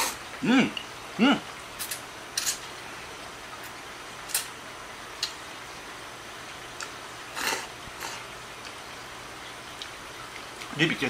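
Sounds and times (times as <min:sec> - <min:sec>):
person slurping noodles: 0:07.3 - 0:08.2.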